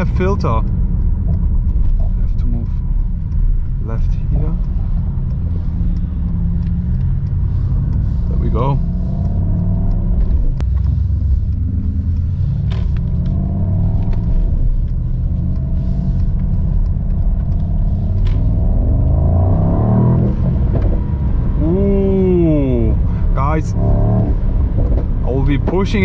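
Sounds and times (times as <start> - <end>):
car engine accelerating: 0.0 - 26.0.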